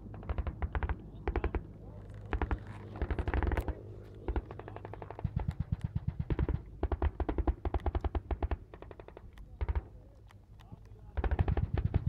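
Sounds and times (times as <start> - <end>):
automatic gunfire bursts: 4.3 - 10.0, 11.1 - 12.0.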